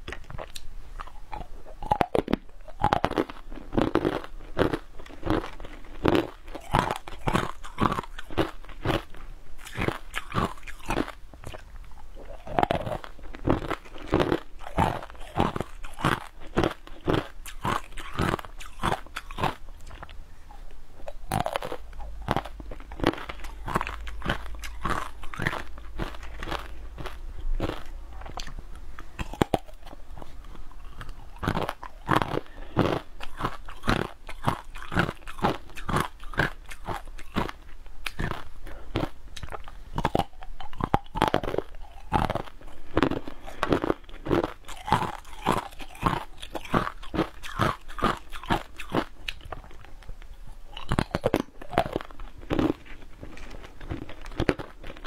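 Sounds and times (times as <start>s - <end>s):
crunchy chewing of frozen food: 0.0s - 55.0s.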